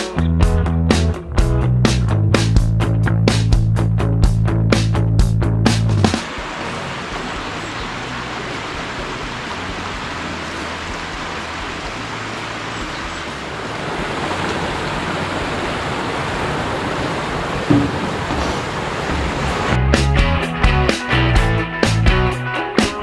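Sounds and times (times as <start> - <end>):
stream water rushing over rocks: 6.1 - 19.8.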